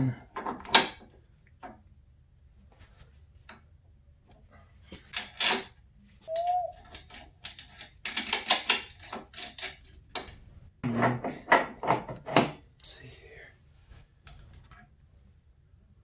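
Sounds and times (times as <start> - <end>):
metal chain clicking and rattling: 6.8 - 10.3.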